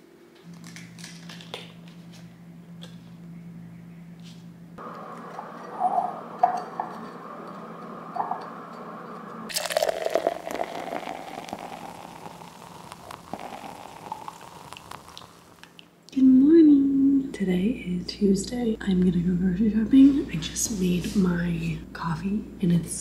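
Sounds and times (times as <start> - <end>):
hot water trickling into filter: 9.5 - 15.7.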